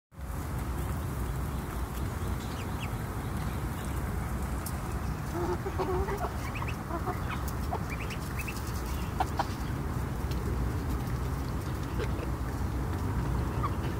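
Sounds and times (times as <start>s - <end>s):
hens clucking softly: 5.1s - 10.4s, 11.0s - 13.9s.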